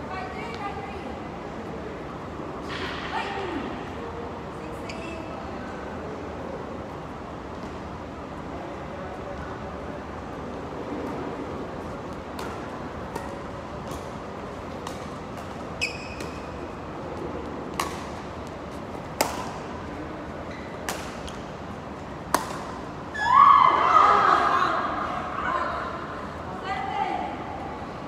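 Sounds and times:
racket hitting shuttlecock: 12.3 - 16.6, 17.6 - 19.8, 20.8 - 21.5, 22.2 - 22.9
shoe squeak on court floor: 15.8 - 16.5.

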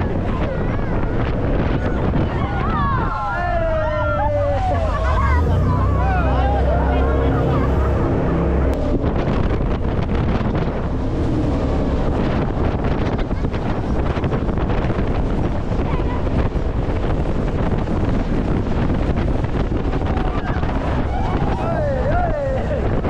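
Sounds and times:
heavy wind buffeting microphone: 0.0 - 23.0.

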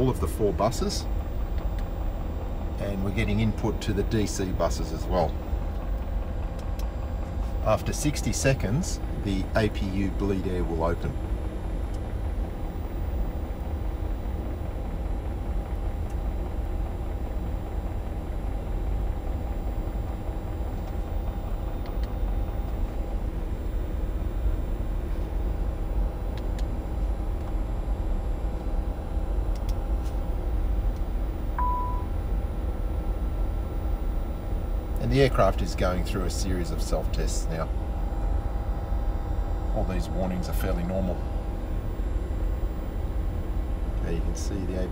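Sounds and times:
auxiliary power unit droning: 0.0 - 44.9
short beep: 31.6 - 32.1.

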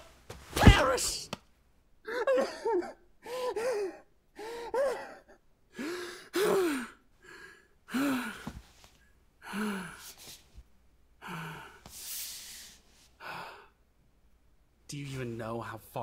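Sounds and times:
young man sobbing: 2.0 - 7.0.

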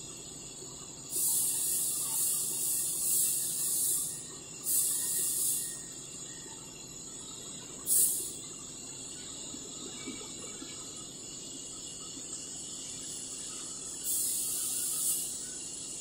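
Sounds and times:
high hissing bursts: 1.1 - 5.8, 7.9 - 8.4, 12.8 - 16.0.

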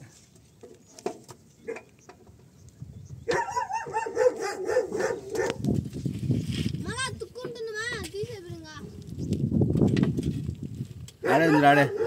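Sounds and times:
dog whining and yelping: 3.3 - 5.5.

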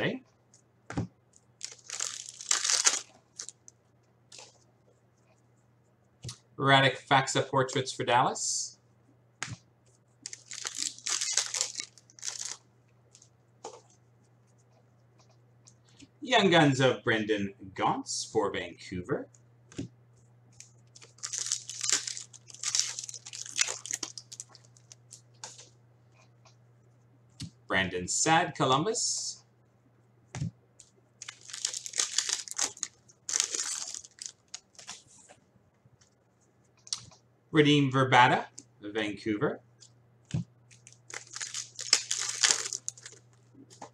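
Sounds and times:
wrapper crinkling and tearing: 1.6 - 3.6, 10.2 - 12.6, 21.0 - 25.2, 31.2 - 35.0, 40.7 - 43.4.

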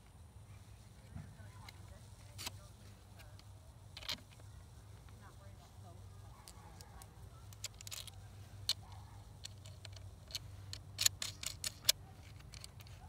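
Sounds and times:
metal battery terminals clicking: 3.3 - 4.4, 6.4 - 13.0.

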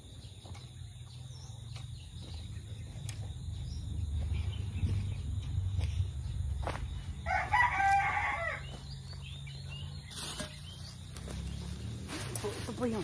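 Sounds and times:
rooster crowing: 7.2 - 8.8.

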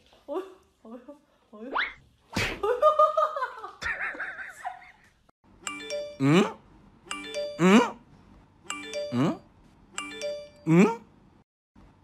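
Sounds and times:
doorbell-like chime: 5.6 - 6.4, 7.1 - 7.8, 8.7 - 9.4, 10.0 - 10.7.

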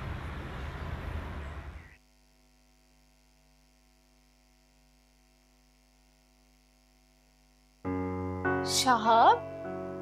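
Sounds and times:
city traffic noise: 0.0 - 1.8
faint electrical mains hum: 0.0 - 10.0.

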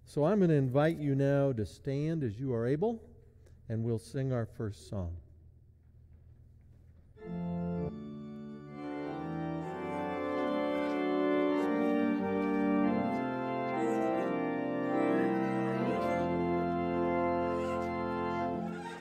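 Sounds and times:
church organ playing chords: 7.2 - 19.0.

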